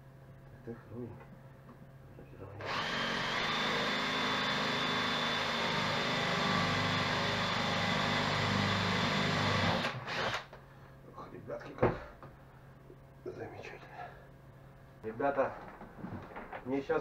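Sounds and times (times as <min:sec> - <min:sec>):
electric drill boring into wood: 0:02.6 - 0:10.5.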